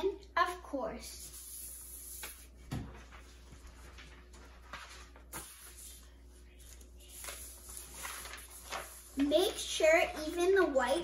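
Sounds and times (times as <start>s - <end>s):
paper sliding across a table: 1.2s - 9.6s
soft paper rustles and knocks: 6.6s - 9.8s.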